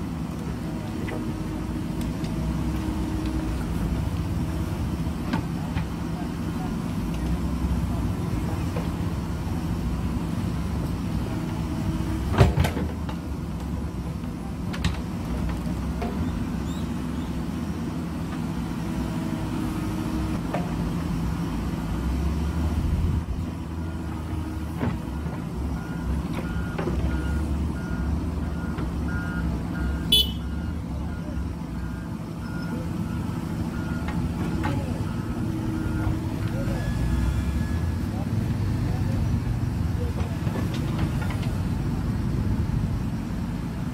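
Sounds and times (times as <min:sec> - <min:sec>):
diesel engine running under load: 0:00.0 - 0:43.9
faint repeating beep: 0:29.1 - 0:33.2.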